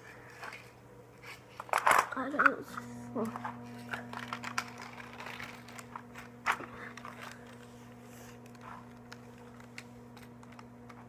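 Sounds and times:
steady low hum: 0.0 - 11.0
plastic toy track clicking and rustling: 0.3 - 2.6, 4.1 - 7.6.

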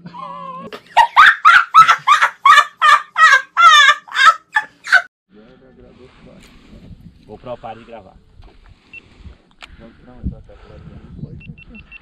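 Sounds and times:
person cackling with laughter: 0.1 - 5.1.

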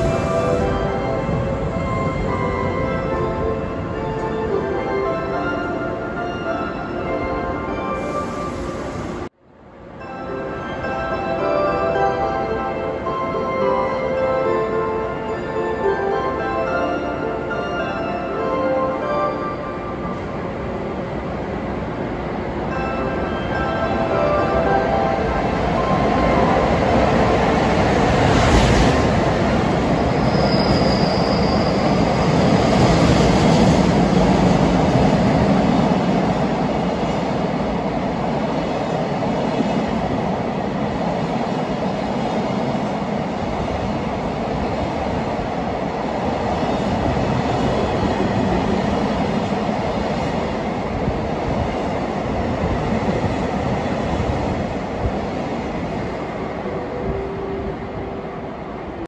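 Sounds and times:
freight train rumbling past: 0.0 - 59.0
high wheel squeal: 30.2 - 32.0.

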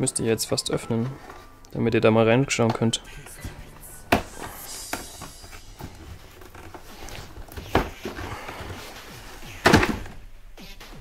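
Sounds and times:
cardboard box clattering thump: 9.6 - 10.2.

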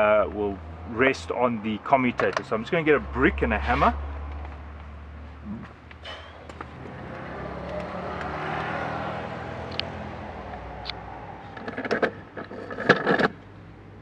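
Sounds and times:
car passing by: 6.1 - 12.4
motor knocking and scraping on brick: 11.6 - 13.4.

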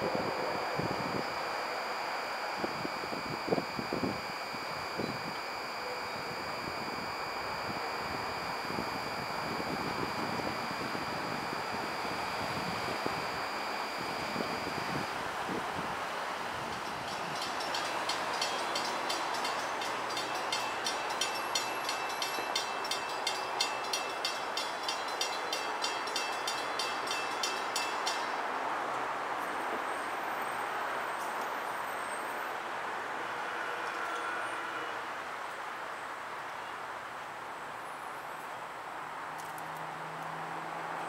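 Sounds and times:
crossing warning bell ringing: 0.0 - 15.2, 16.7 - 28.9.

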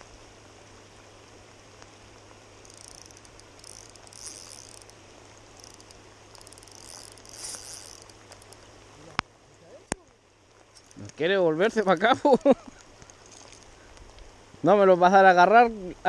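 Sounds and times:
steady low hiss: 0.0 - 16.0
fishing reel clicking buzz: 2.6 - 8.7.

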